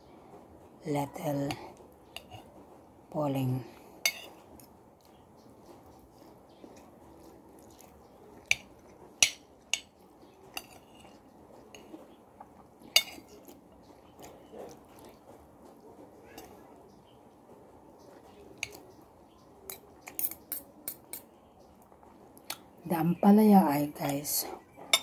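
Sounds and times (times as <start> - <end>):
spoon and fork clinking on a plate: 2.2 - 2.5, 4.0 - 4.4, 7.7 - 12.0, 12.9 - 13.6, 19.7 - 21.3, 24.8 - 25.0.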